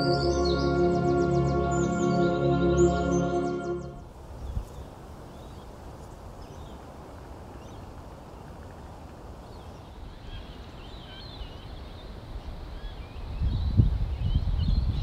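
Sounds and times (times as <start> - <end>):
small birds chirping: 3.7 - 6.9, 7.5 - 15.0.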